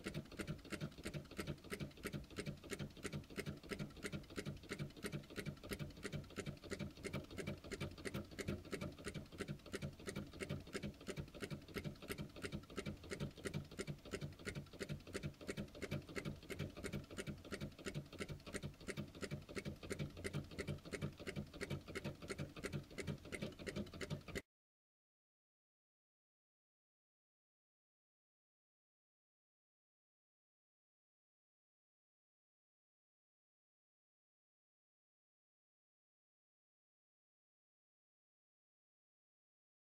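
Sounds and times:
hot-air engine clicking: 0.0 - 24.4.

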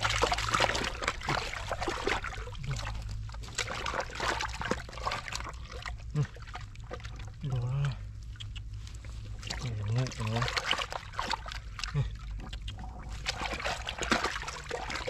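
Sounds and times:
hands splashing in muddy water: 0.0 - 15.0
short vocal grunt: 6.1 - 6.4.

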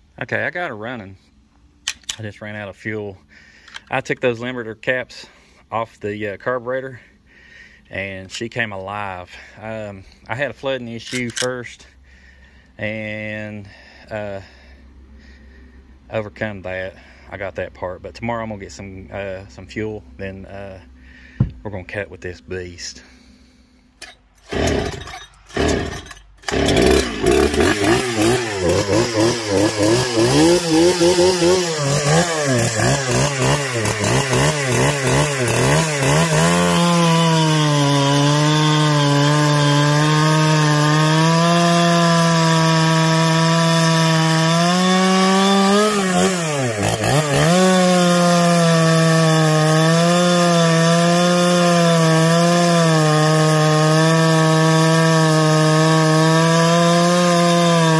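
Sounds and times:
chainsaw cutting log: 24.0 - 57.9
chainsaw pull-start: 24.0 - 57.9.

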